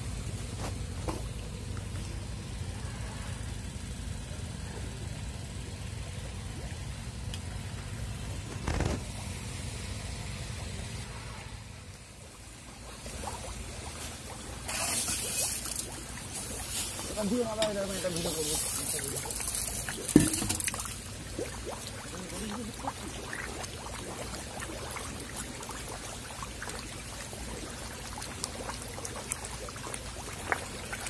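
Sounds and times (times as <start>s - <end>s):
steady low rumble: 0.0s - 14.9s
fish splashing at water surface: 4.6s - 31.0s.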